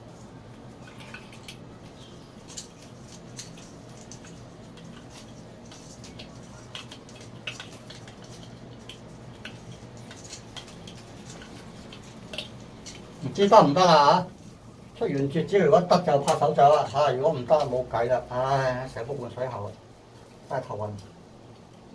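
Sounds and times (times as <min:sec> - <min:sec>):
steady low hum: 0:00.0 - 0:21.9
tape crinkling and clicking: 0:00.6 - 0:13.5.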